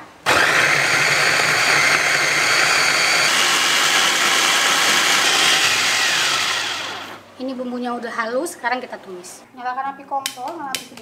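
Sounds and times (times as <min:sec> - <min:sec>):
electric food chopper grinding: 0:00.3 - 0:07.2.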